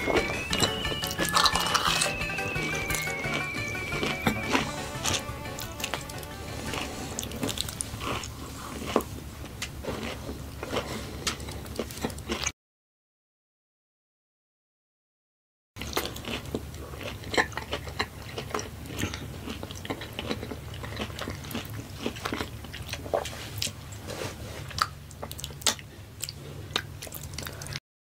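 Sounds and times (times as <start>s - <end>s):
low steady hum: 0.0s - 12.2s
close chewing with wet clicks: 15.8s - 23.8s, 24.7s - 27.8s.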